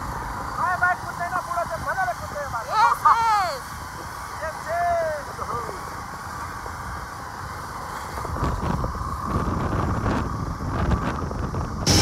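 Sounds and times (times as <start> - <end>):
motorcycle engine rumble: 5.5 - 12.0
wind on microphone: 6.0 - 12.0.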